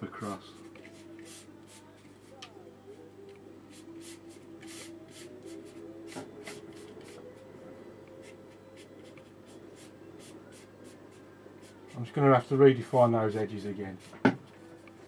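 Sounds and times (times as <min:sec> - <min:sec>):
brush sweeping across paper: 0:00.5 - 0:02.0, 0:03.7 - 0:07.2, 0:08.2 - 0:12.0.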